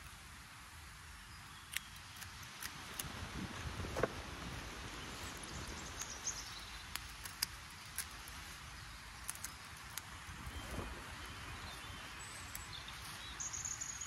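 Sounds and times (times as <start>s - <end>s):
wind buffeting microphone: 3.0s - 6.1s, 10.2s - 13.1s
faint bird chirps: 4.9s - 14.0s
sharp clicks: 6.8s - 8.4s.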